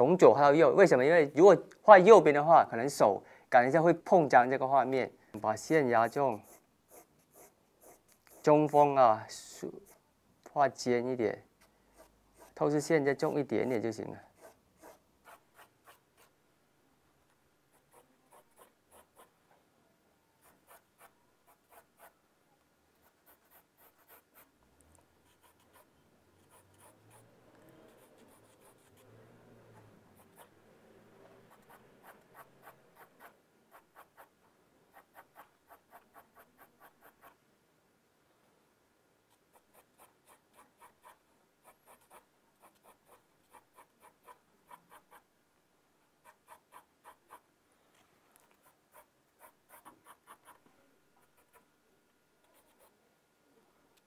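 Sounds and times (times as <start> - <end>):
pencil scratching on paper: 6.0 - 8.6, 11.9 - 13.4, 14.3 - 16.3, 17.7 - 19.3, 20.4 - 22.2, 23.0 - 24.5, 25.2 - 29.2, 29.8 - 30.5, 31.4 - 34.3, 34.9 - 37.4, 39.3 - 45.2, 48.5 - 50.6, 52.4 - 53.0.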